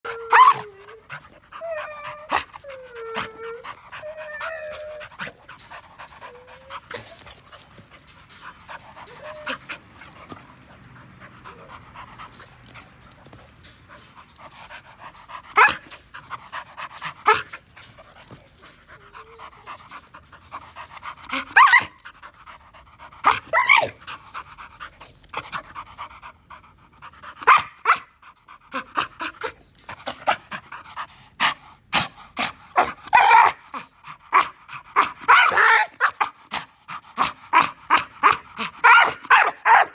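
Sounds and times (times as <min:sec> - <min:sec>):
dog whining: 0:00.0 - 0:10.1, 0:15.2 - 0:22.0, 0:23.3 - 0:24.0
dog panting: 0:00.8 - 0:32.9.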